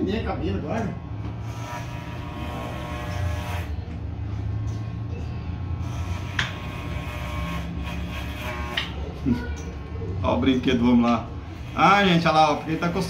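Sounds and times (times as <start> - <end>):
low electric hum: 0.0 - 13.0.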